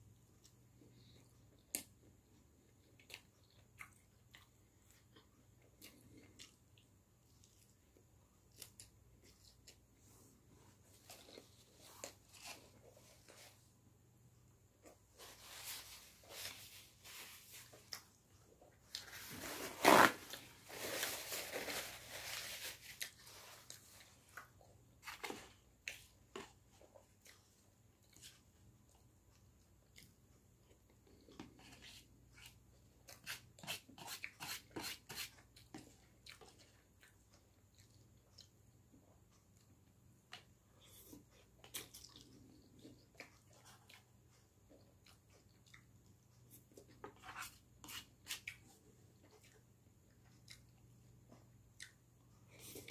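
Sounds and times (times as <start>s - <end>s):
chewing: 0.4s - 9.9s, 35.4s - 52.9s.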